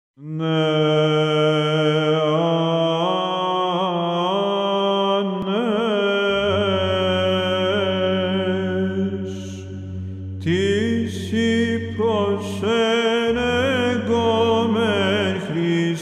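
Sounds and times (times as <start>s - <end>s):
person chanting ornamented melody: 0.2s - 16.0s
lower drone: 5.5s - 16.0s
sustained drone note: 5.5s - 16.0s.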